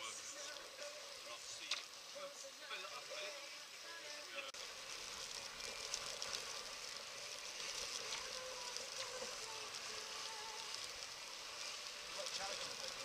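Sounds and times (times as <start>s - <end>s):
wind hissing: 0.0s - 13.0s
water rushing around hull: 4.6s - 13.0s.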